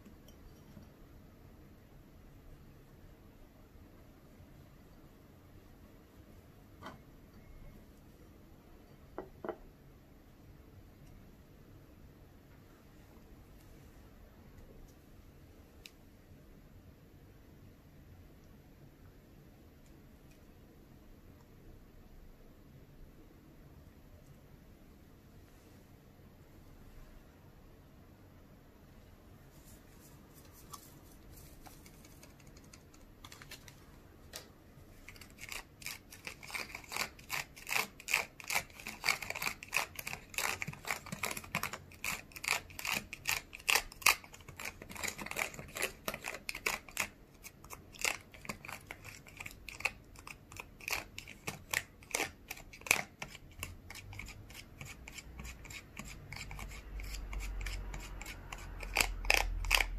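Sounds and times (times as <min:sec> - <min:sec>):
plastic spoon scraping plastic tray: 0:35.1 - 0:59.9.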